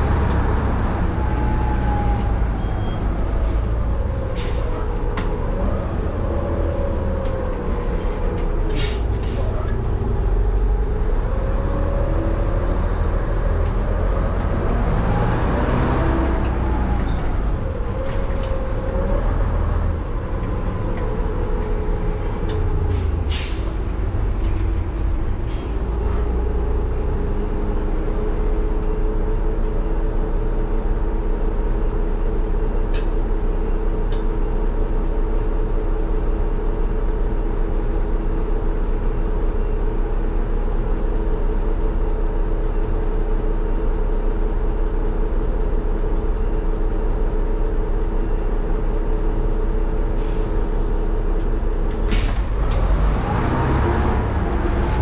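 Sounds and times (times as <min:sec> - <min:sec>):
bus diesel engine running: 0:00.0 - 0:55.0
repeating high beep: 0:00.3 - 0:18.4, 0:22.8 - 0:32.8.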